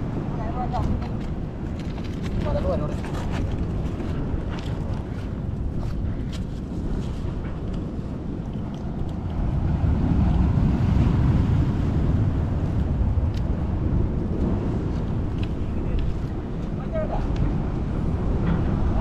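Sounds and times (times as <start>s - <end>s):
faint waves: 0.0s - 19.0s
wind rumbling on microphone: 0.0s - 19.0s.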